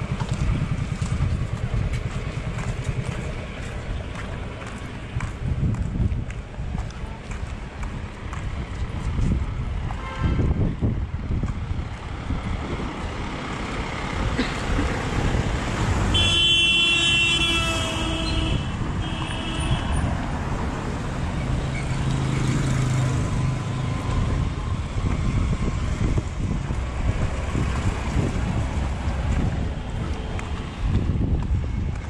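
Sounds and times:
street traffic noise: 0.0 - 32.0
vehicle horn honking: 10.0 - 10.5, 16.1 - 20.1.

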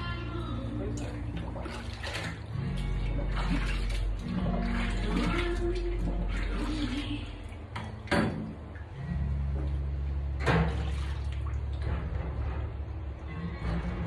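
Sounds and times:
water sloshing in a metal sink: 0.0 - 14.0.

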